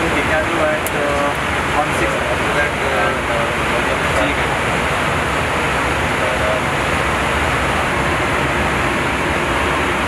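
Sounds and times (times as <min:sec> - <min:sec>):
aircraft engine noise: 0:00.0 - 0:10.0
airflow rushing: 0:03.4 - 0:10.0.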